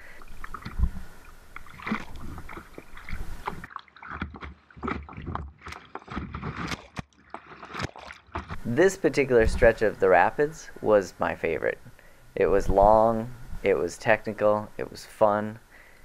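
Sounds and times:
paddle splashes: 0.1 - 8.6
steady high hiss: 8.6 - 16.0.

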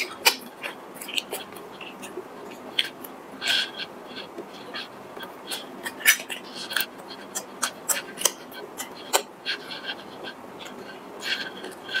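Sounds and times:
chewing mouth clicks and smacks: 0.0 - 9.3.

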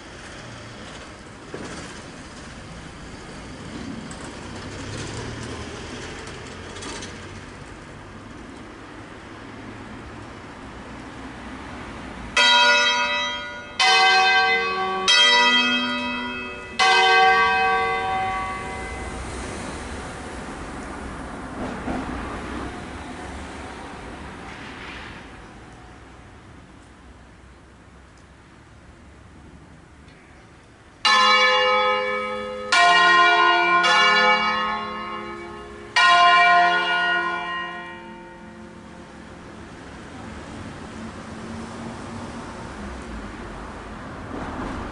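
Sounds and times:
church bell strokes: 12.4 - 19.2, 31.1 - 38.9.

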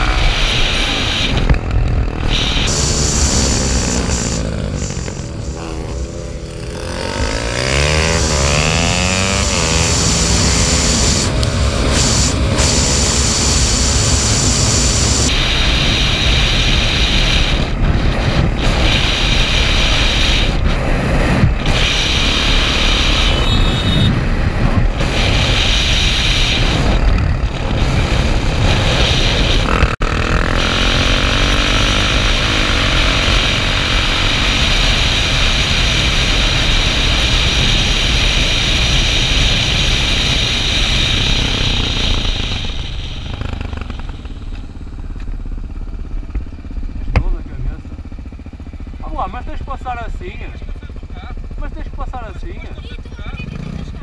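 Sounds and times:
heavy wind noise: 0.0 - 44.6
motorcycle engine running: 0.0 - 54.0.

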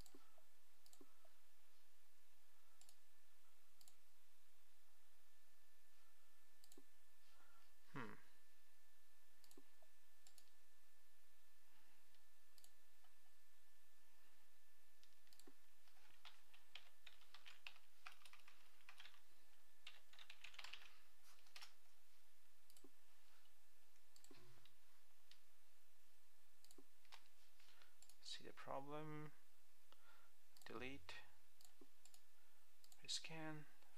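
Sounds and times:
computer keyboard typing: 15.0 - 21.8.

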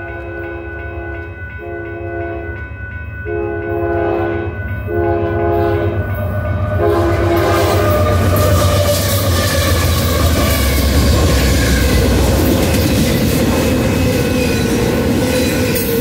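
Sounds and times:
train air horn blasts: 0.0 - 2.5, 3.3 - 6.0, 6.6 - 10.6
locomotive engines: 0.0 - 16.0
train wheels rolling: 0.0 - 16.0.

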